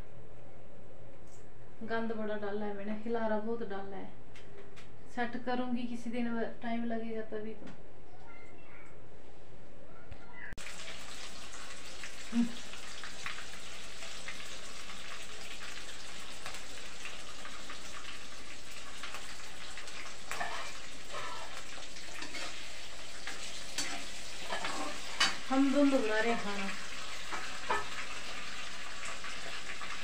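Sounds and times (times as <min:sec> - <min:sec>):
vegetables sizzling in oil: 0:10.6 - 0:30.0.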